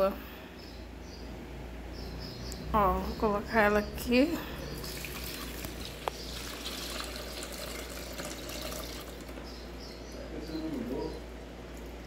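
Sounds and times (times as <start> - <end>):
water pouring into plastic tub: 4.8 - 9.4.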